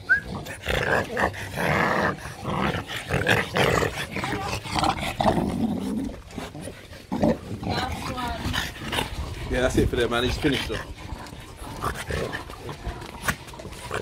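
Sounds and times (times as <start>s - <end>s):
dogs grunting and breathing: 0.0s - 14.0s
high-pitched dog sounds: 3.4s - 4.8s.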